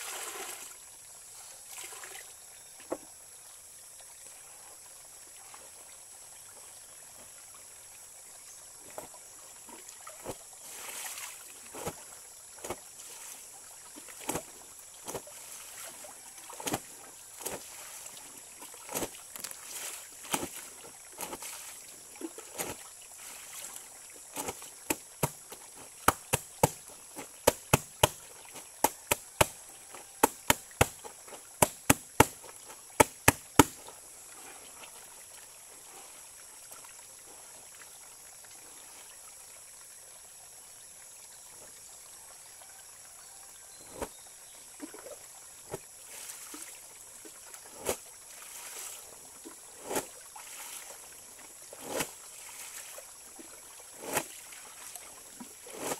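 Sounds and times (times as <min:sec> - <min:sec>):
water splashes: 0:00.0 - 0:00.8, 0:01.6 - 0:02.3, 0:08.8 - 0:37.0, 0:44.7 - 0:55.9
stream trickling: 0:00.0 - 0:55.9
wet clothes slapping on plank: 0:24.4 - 0:28.2, 0:28.8 - 0:29.6, 0:30.2 - 0:33.8.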